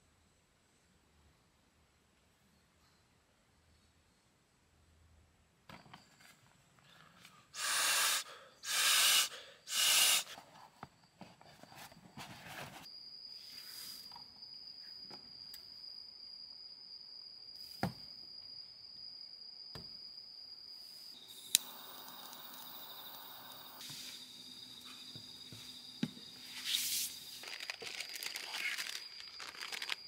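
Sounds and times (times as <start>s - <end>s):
high insect trill: 5.7s - 30.0s
jet flame hissing: 7.6s - 10.3s, 21.3s - 24.2s
torch lighter clicking: 21.4s - 23.6s.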